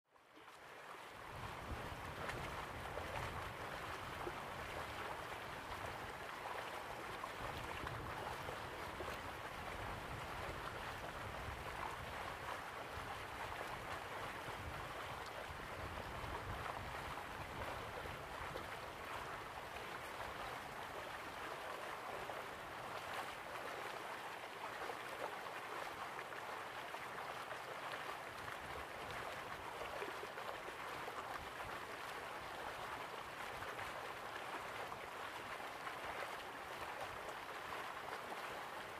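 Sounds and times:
water splashing against boat: 0.4 - 38.9
wind rumble on microphone: 1.2 - 21.2.

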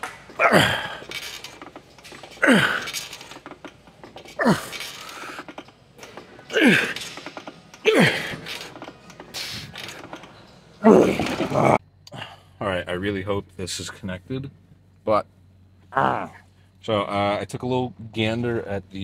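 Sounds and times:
man grunting with effort: 0.4 - 1.1, 2.4 - 3.0, 4.4 - 4.8, 6.5 - 7.0, 7.9 - 8.4, 10.8 - 12.3.

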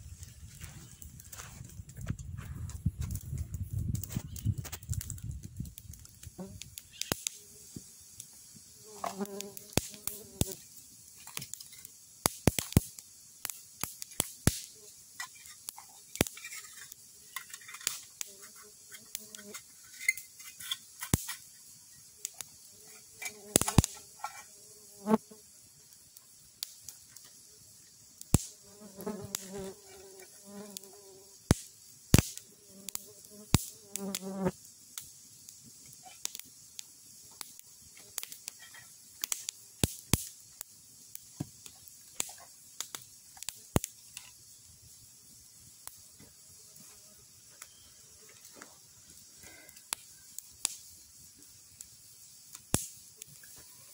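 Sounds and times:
campfire crackling and popping: 0.0 - 46.2, 48.4 - 53.9
flies buzzing: 6.0 - 11.9, 13.8 - 25.7, 27.1 - 35.1.

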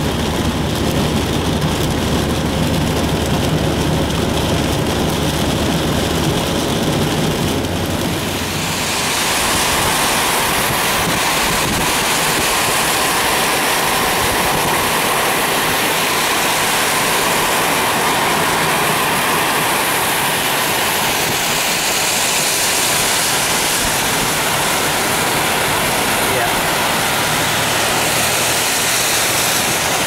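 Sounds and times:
rain: 0.0 - 30.0
tyres hissing through water: 8.2 - 30.0.

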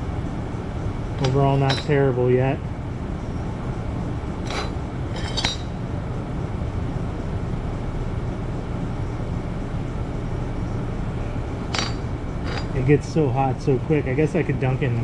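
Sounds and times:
steady low hum: 0.0 - 15.0
light metallic clinks: 1.2 - 2.0, 4.5 - 5.8, 11.7 - 12.8.

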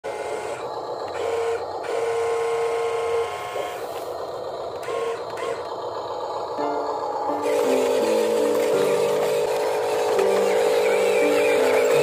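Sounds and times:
small electric gear motor whirring: 0.1 - 12.0.

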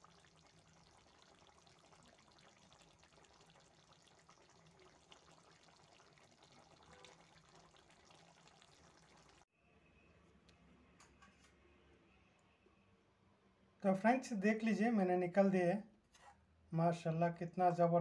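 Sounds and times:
curry bubbling in a pan: 0.0 - 9.5.

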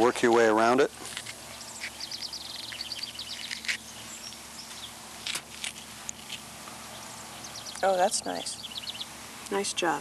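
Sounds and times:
steady low hum: 0.0 - 10.0
high chirps: 1.4 - 5.0, 6.9 - 9.3.

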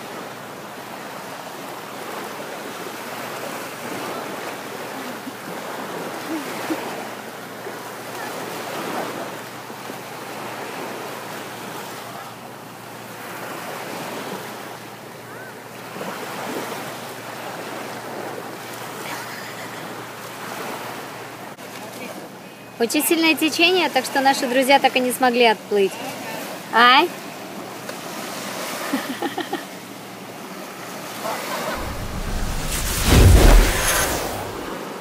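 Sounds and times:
waves washing onto beach: 0.0 - 22.3
wind buffeting microphone: 31.8 - 34.8.

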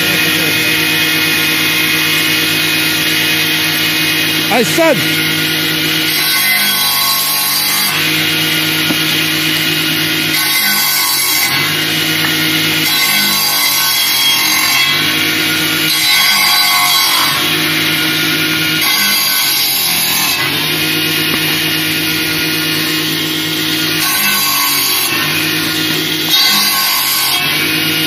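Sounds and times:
circular saw motor hum: 0.0 - 6.1
saw screeching through wood: 0.0 - 28.0.

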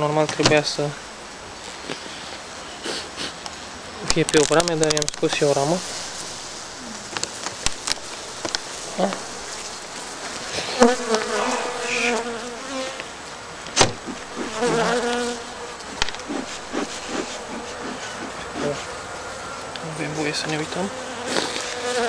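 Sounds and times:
bees buzzing: 5.8 - 20.1, 20.8 - 22.0
bee flying past: 7.8 - 13.2, 14.0 - 18.9, 20.9 - 22.0.

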